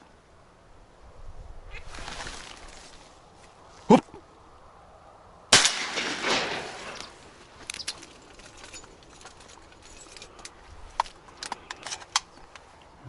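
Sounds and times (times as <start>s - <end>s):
shotgun shot with echo: 5.5s - 7.0s.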